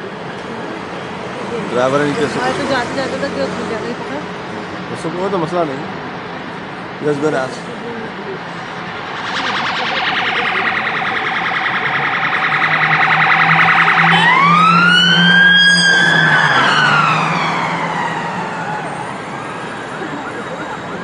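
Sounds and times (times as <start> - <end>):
emergency vehicle siren: 7.8 - 21.0.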